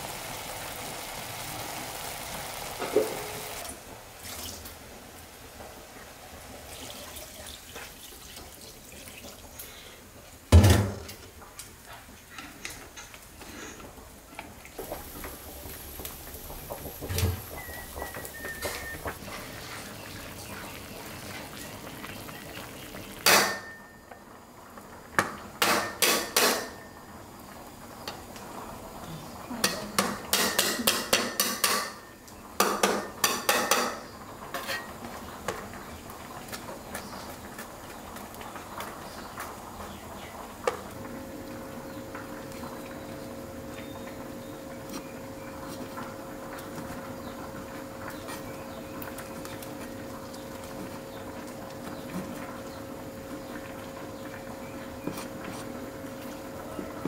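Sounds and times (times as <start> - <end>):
dishes and pots clattering: 2.8 - 3.3, 16.5 - 20.0, 23.2 - 24.0, 25.2 - 27.0, 29.6 - 35.0.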